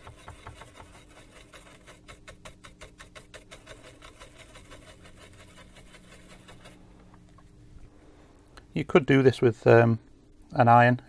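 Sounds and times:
small brush scrubbing: 0.0s - 6.9s.

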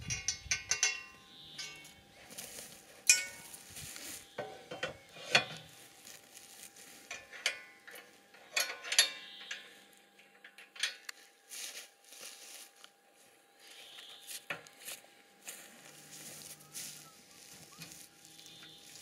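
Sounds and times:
metal tube clanking: 0.0s - 2.0s, 3.1s - 3.5s, 4.4s - 5.7s, 7.1s - 9.7s.

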